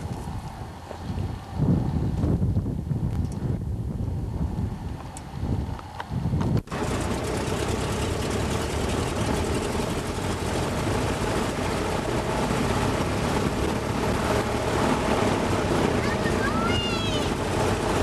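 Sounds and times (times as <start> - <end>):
rushing air: 3.6 - 18.0
biplane engine drone: 5.0 - 18.0.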